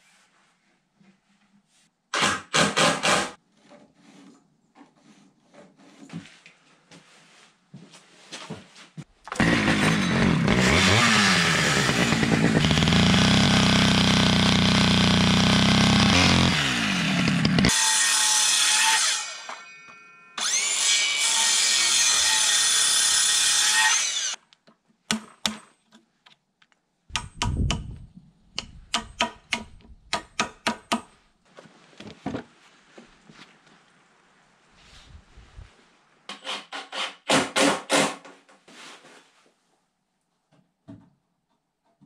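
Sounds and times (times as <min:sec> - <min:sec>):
circular saw cutting timber: 0:09.3 - 0:19.6, 0:20.4 - 0:24.4
hammer striking chisel: 0:25.1 - 0:25.7, 0:27.1 - 0:28.0, 0:28.6 - 0:31.2.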